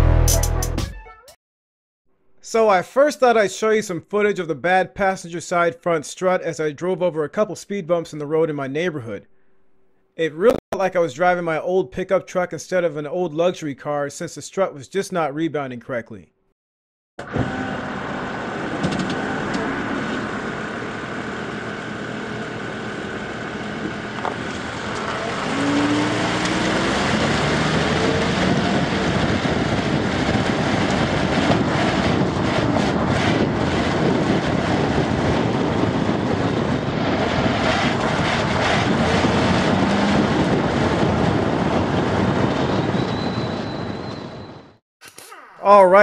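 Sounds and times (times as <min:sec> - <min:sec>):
car road and engine noise: 0:17.2 - 0:44.4.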